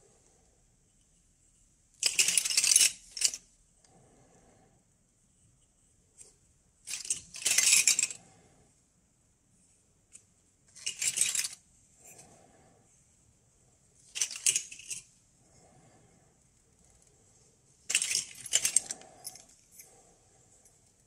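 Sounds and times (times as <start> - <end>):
metal tubes clinking: 6.9 - 8.2, 10.7 - 11.6, 14.0 - 15.1, 17.9 - 20.0.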